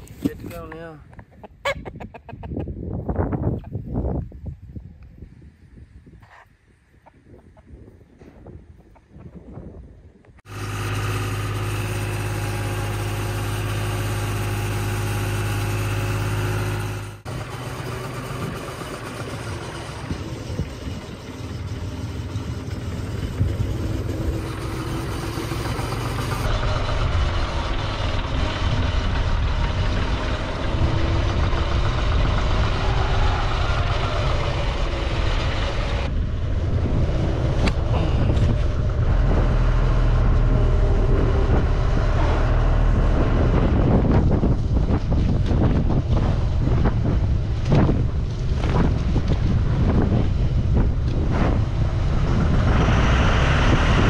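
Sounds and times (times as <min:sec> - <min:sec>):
wind on microphone: 0:00.0 - 0:10.4, 0:26.4 - 0:54.0
tractor engine running: 0:10.4 - 0:54.0.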